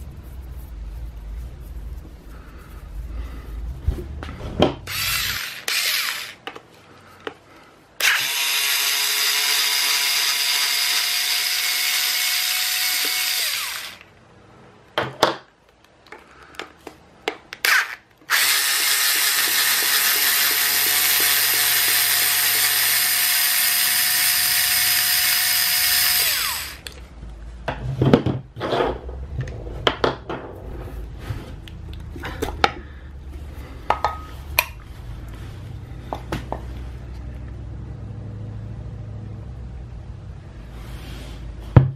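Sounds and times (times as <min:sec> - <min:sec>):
electric screwdriver running: 0:04.9 - 0:06.4, 0:08.0 - 0:14.0, 0:17.7 - 0:26.9.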